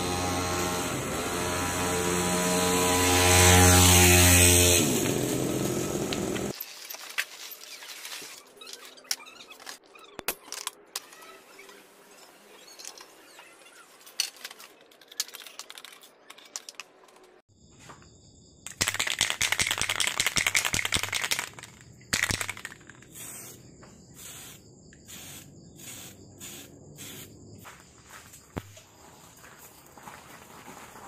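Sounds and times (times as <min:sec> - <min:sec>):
metal clicks and rattles: 0:14.1 - 0:17.4
insects chirping: 0:17.5 - 0:31.0
spray paint can hissing: 0:18.8 - 0:27.3.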